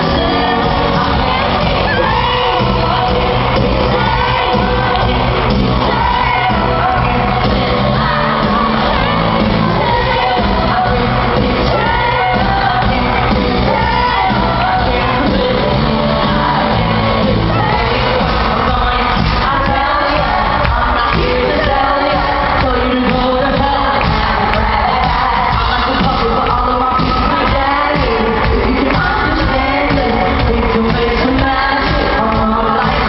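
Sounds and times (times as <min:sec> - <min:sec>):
amplified pop band playing: 0:00.0 - 0:33.0
crowd shouting and whooping: 0:00.0 - 0:33.0
person singing: 0:00.0 - 0:33.0.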